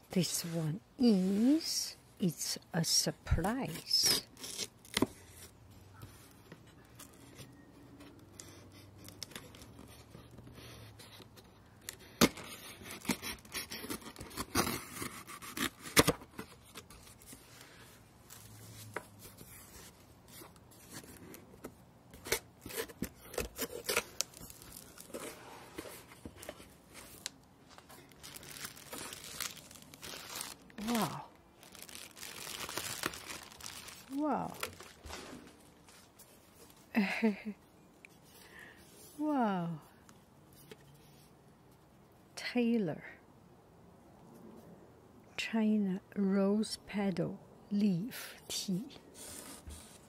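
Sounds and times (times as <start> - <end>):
packing tape tearing: 3.6 - 5.2, 11.8 - 17.4, 22.1 - 35.6
plastic packing crinkling: 22.2 - 36.2.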